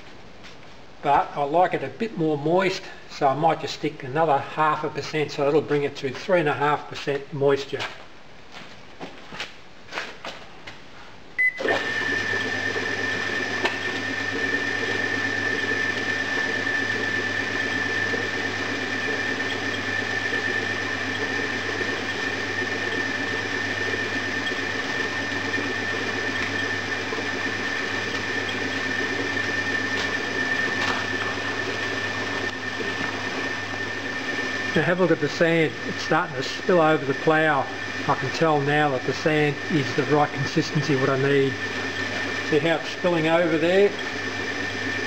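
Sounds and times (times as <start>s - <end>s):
short beep: 11.4s - 11.7s
motor running with high whine: 11.6s - 45.0s.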